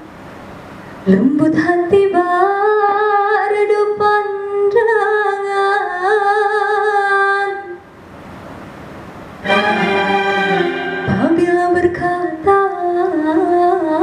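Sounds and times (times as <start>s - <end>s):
woman singing into microphone: 11.2s - 14.0s.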